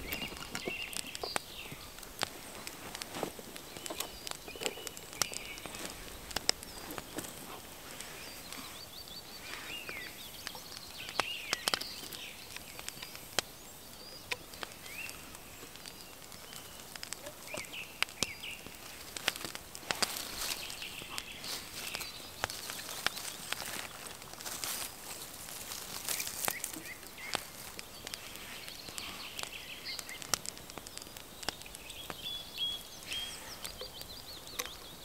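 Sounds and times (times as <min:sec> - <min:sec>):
clicks and knocks of camp gear: 0:00.0 - 0:08.1
birds chirping: 0:00.0 - 0:35.0.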